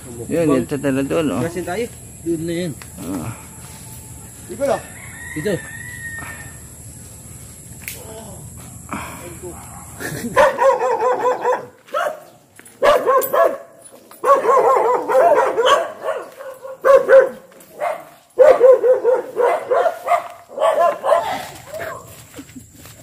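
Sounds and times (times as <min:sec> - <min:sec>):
dog barking and yelping: 0:09.6 - 0:22.1.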